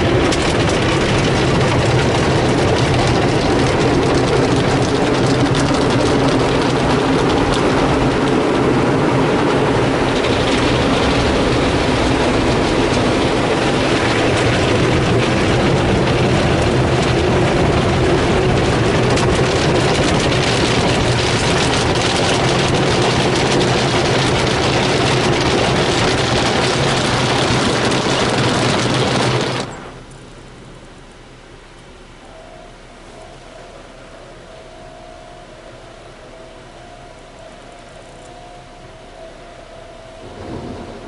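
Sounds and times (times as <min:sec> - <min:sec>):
car wash brushes slapping: 0:00.0 - 0:29.8
water spraying: 0:00.0 - 0:30.8
low hum: 0:00.0 - 0:41.0.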